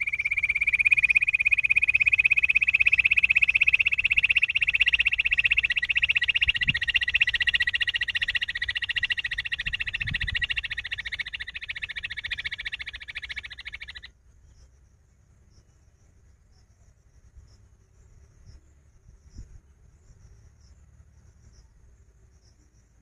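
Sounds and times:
bird purring trill: 0.0 - 14.1.

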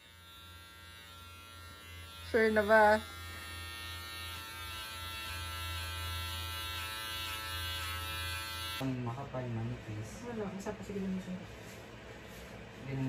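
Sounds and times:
electric hair clippers buzzing: 0.0 - 9.0.

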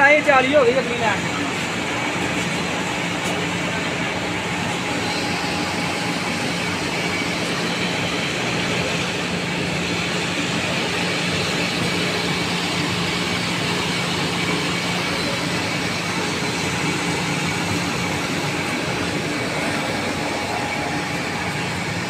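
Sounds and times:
faint high whine: 0.0 - 22.0
machinery running with low hum: 0.0 - 22.0.

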